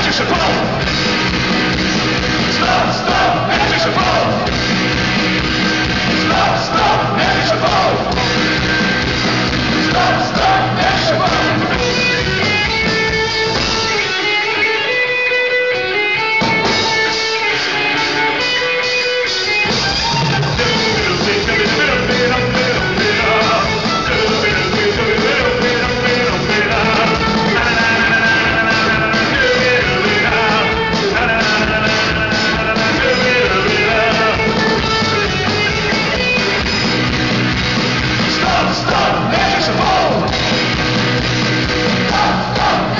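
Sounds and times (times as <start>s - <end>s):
lead singer: 0.0s - 4.9s, 5.9s - 12.8s, 20.2s - 36.6s, 38.2s - 40.6s, 41.8s - 42.9s
punk rock band playing live: 0.0s - 42.9s.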